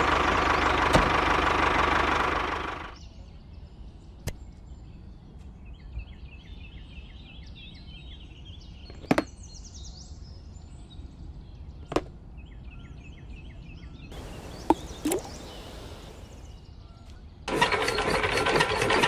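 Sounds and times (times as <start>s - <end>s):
high bird-like chirping: 14.2s - 16.6s
low steady rumble: 14.2s - 16.6s.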